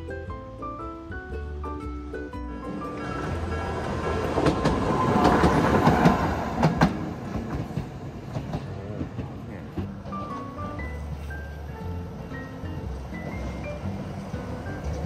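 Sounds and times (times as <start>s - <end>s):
tram running on rails: 0.0s - 15.0s
wheels clacking over rail joints: 0.1s - 15.0s.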